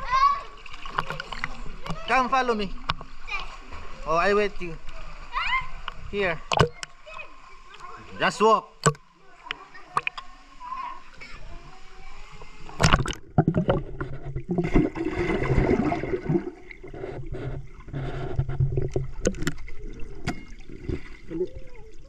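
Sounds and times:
muffled water sloshing and gurgling: 11.4 - 22.0.

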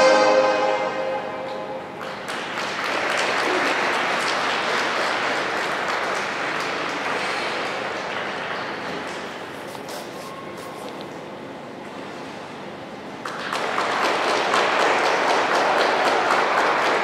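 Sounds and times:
audience applauding: 2.0 - 9.5, 13.2 - 17.0.

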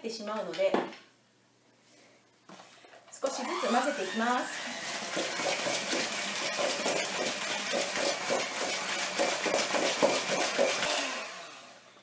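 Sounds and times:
electric mixer whirring in a bowl: 3.3 - 11.8.

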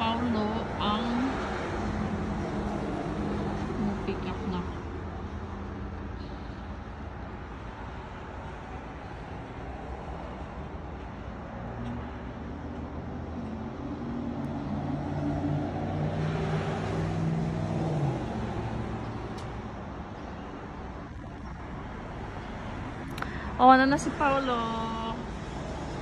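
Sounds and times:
road traffic: 0.0 - 26.0.

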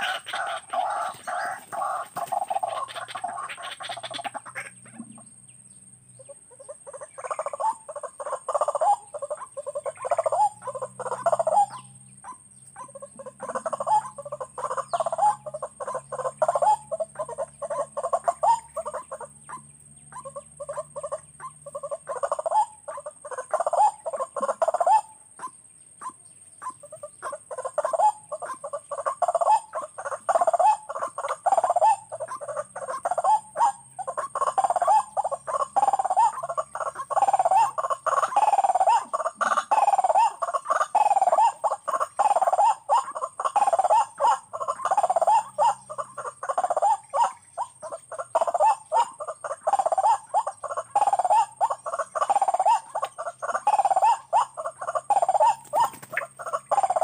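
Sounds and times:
waterhen calling harsh notes: 0.0 - 5.0, 20.2 - 57.0.

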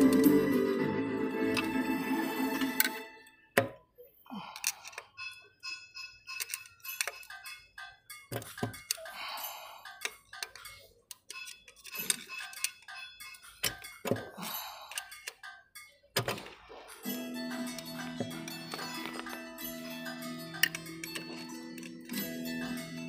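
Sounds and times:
held low chord: 0.0 - 2.8
bell-like notes: 0.0 - 3.4, 17.0 - 23.0.

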